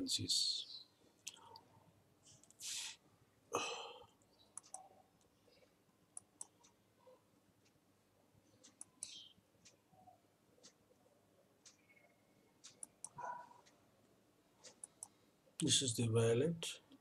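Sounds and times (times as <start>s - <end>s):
computer mouse clicks: 2.3s - 2.7s, 4.2s - 5.3s, 6.1s - 6.8s, 8.5s - 9.8s, 11.6s - 13.8s, 14.6s - 15.2s.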